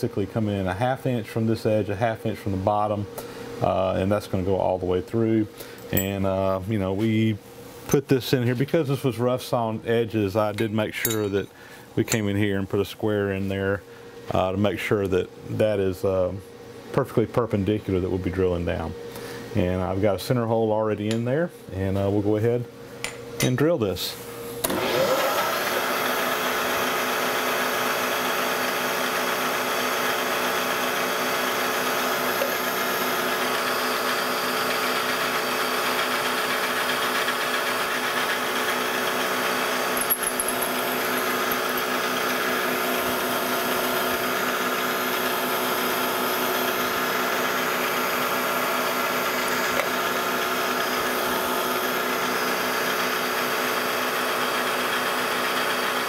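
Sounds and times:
drill press cutting metal: 0:24.6 - 0:56.0.

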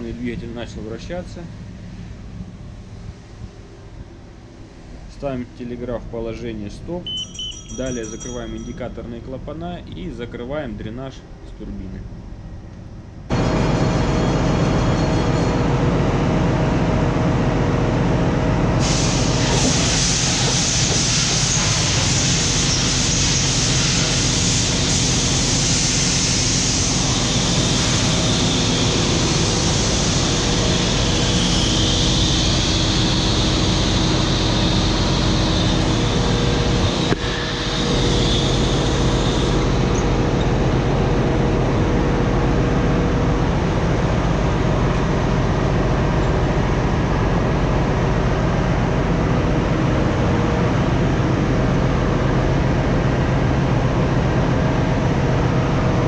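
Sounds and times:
engine machinery noise: 0:13.3 - 0:56.0
compressed air hissing: 0:18.8 - 0:40.4.

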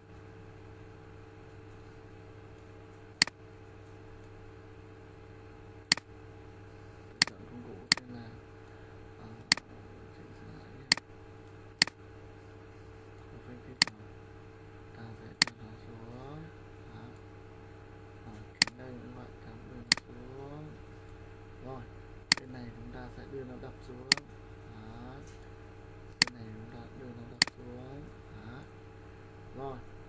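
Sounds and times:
low electrical hum: 0:00.0 - 0:30.0
computer mouse clicking: 0:07.2 - 0:08.1, 0:19.9 - 0:20.1.

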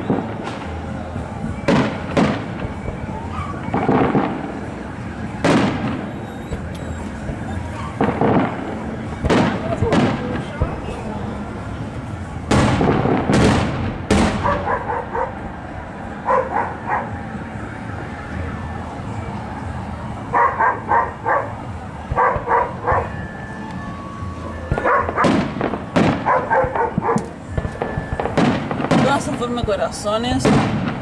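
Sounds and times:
fireworks bangs: 0:00.0 - 0:31.0
dog barking: 0:03.2 - 0:03.7, 0:14.4 - 0:15.4, 0:16.2 - 0:17.1, 0:20.3 - 0:23.2, 0:24.8 - 0:25.4, 0:26.2 - 0:27.3.

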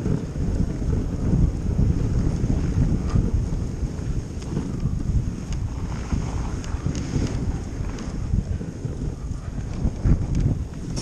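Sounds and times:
wind buffeting microphone: 0:00.0 - 0:11.0
faint light ticks: 0:04.4 - 0:05.6, 0:09.3 - 0:11.0.

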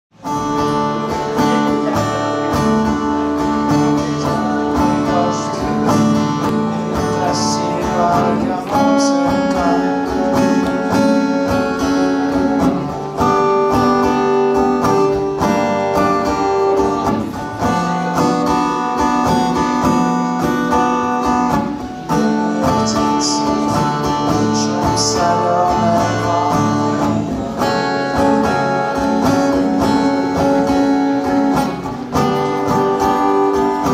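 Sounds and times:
acoustic guitar chords: 0:00.1 - 0:33.9.

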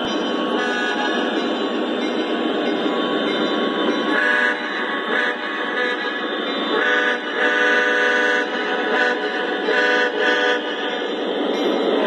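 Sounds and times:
model trains rumbling: 0:00.0 - 0:12.0
model locomotive diesel horn: 0:00.6 - 0:01.2, 0:04.1 - 0:10.9.

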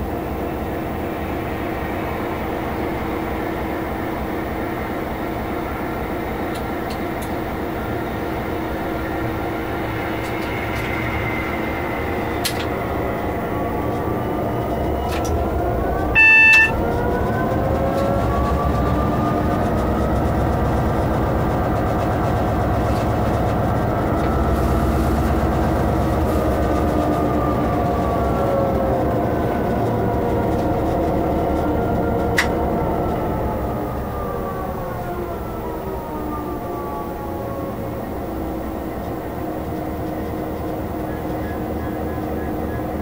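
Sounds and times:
locomotive engine whine: 0:00.0 - 0:43.0
horn-like tone: 0:16.1 - 0:16.9.

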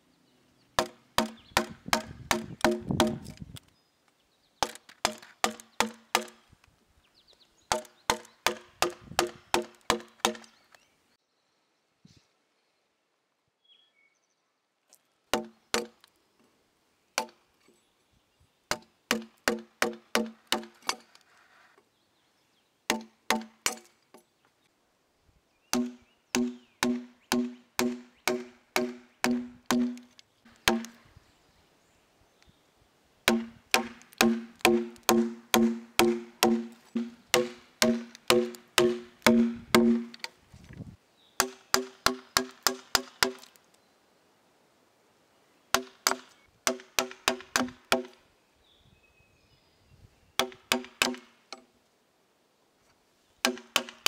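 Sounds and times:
mallet tapping steel gouge: 0:33.3 - 0:40.1.

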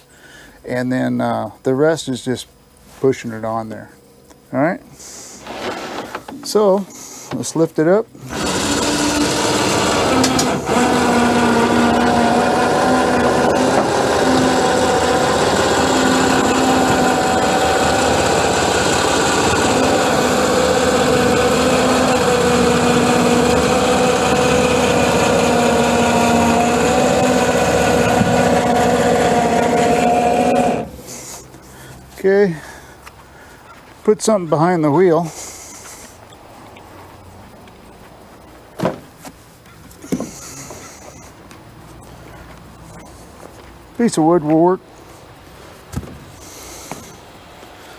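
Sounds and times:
electric winch motor: 0:05.0 - 0:07.3, 0:08.2 - 0:32.0, 0:40.0 - 0:41.4, 0:46.4 - 0:47.9.

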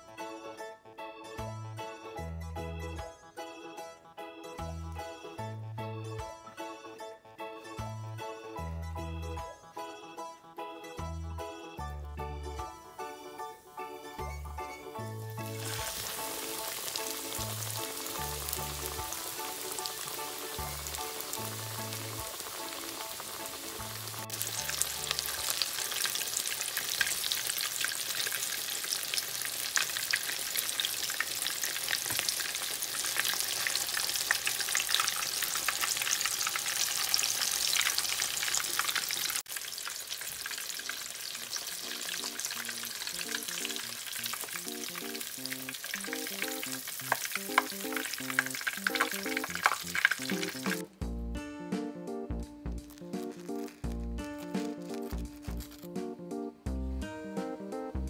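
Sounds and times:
food deep-frying in oil: 0:15.1 - 0:50.9, 0:52.8 - 0:56.0.

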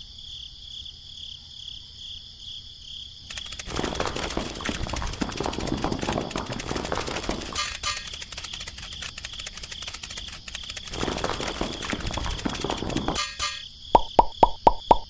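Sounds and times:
crickets chirring: 0:00.0 - 0:15.0
rock dragged over gravel: 0:03.5 - 0:13.2.

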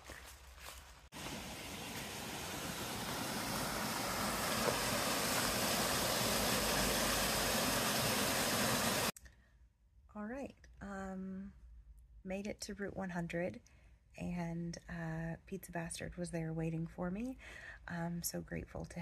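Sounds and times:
stream rushing over rocky waterfall: 0:01.2 - 0:09.1.

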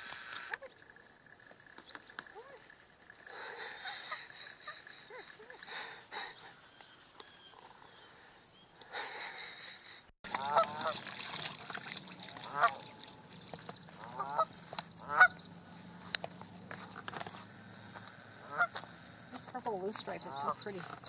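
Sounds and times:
geese honking: 0:10.3 - 0:11.0, 0:12.2 - 0:13.2, 0:14.0 - 0:15.5, 0:18.4 - 0:18.9, 0:19.8 - 0:21.0.

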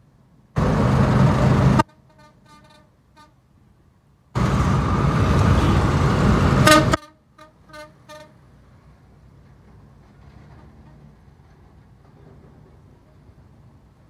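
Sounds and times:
road traffic noise: 0:00.0 - 0:14.0
vehicle horn toots: 0:06.6 - 0:08.4.

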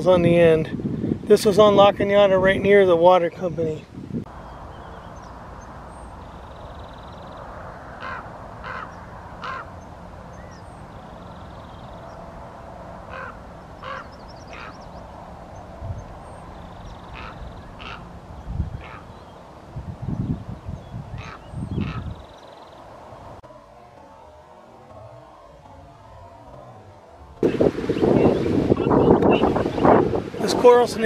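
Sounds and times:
raven croaking caws: 0:07.5 - 0:09.8, 0:13.0 - 0:15.0, 0:16.7 - 0:19.2, 0:21.1 - 0:22.5.

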